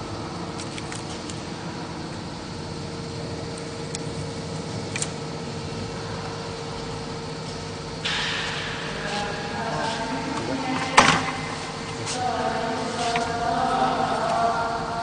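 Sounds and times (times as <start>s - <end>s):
machinery humming: 0.0s - 15.0s
loud hissing: 8.0s - 15.0s.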